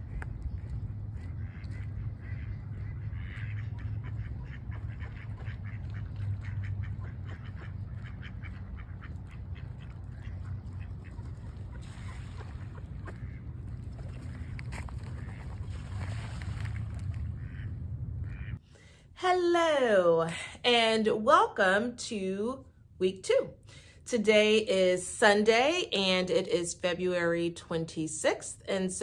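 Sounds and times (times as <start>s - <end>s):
low steady rumble: 0.0s - 26.6s
ducks quacking: 0.1s - 16.0s, 17.0s - 18.6s.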